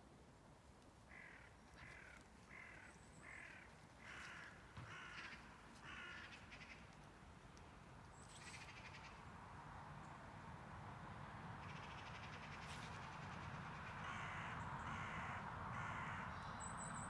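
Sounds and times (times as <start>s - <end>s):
crow cawing: 1.1s - 6.8s, 13.8s - 16.5s.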